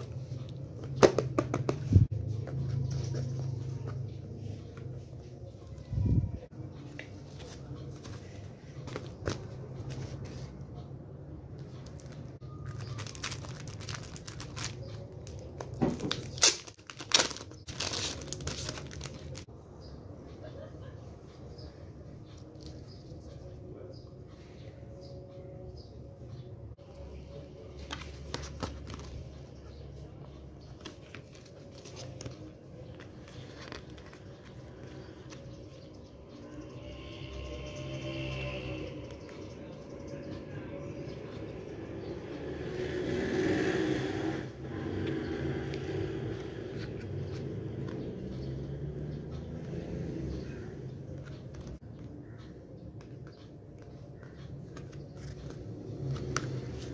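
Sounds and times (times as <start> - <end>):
book pages turning: 6.8 - 10.6, 11.6 - 19.5, 27.1 - 35.8, 45.7 - 48.4, 51.2 - 52.4, 53.0 - 56.9
plastic shrink-wrap crinkling: 11.9 - 19.5.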